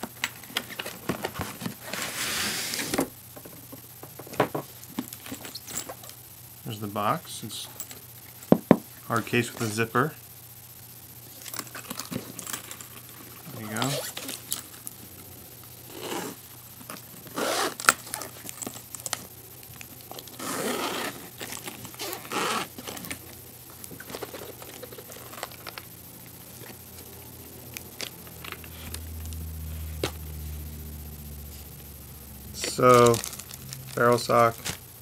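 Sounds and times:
zipper being pulled open: 15.9s - 16.4s, 17.3s - 18.3s, 20.3s - 21.3s, 21.9s - 23.1s
plastic wrapping crinkling and tearing: 32.6s - 34.8s.

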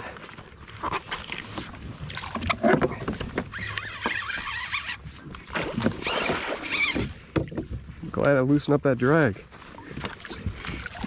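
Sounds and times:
water sloshing: 0.0s - 11.0s
fishing reel drag squealing: 3.5s - 5.1s, 6.0s - 7.2s.

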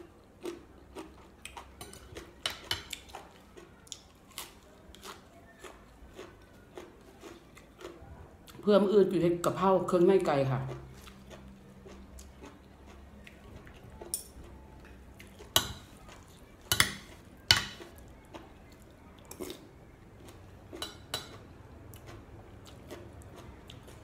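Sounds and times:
cutlery clinking on a ceramic plate: 16.7s - 17.9s.

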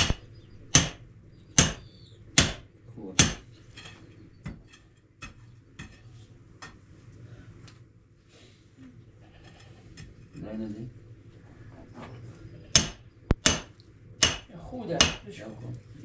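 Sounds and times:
hammer striking masonry: 0.0s - 1.0s, 1.6s - 3.5s, 4.4s - 6.0s, 12.7s - 15.3s.

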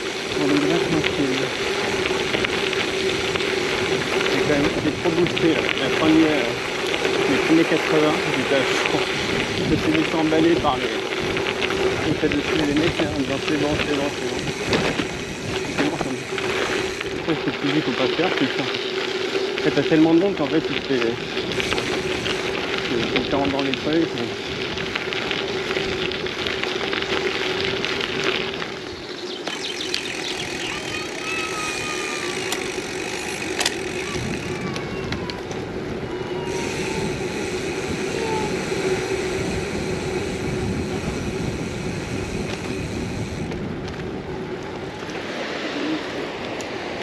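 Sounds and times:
bike click: 0.0s - 47.0s
bike road and wind noise: 0.0s - 47.0s
constant hum: 0.0s - 47.0s.

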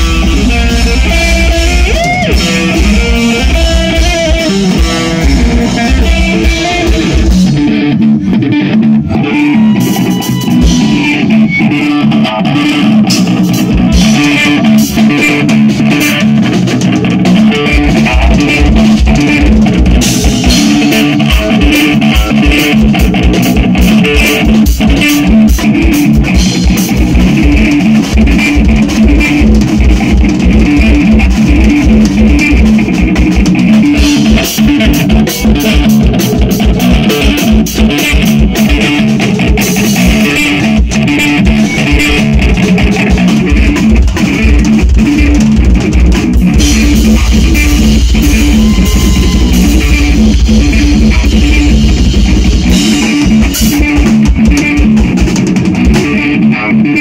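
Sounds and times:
drum kit: 0.0s - 57.0s
electric guitars: 0.0s - 57.0s.

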